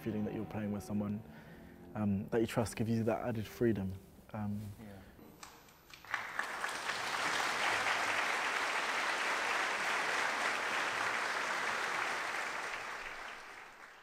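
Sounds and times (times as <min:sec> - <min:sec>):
audience applauding: 0:05.9 - 0:14.0.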